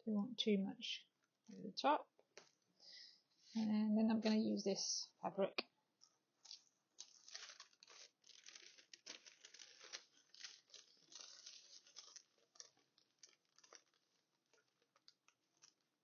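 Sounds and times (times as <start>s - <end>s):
fabric and paper rustling: 6.0s - 16.0s.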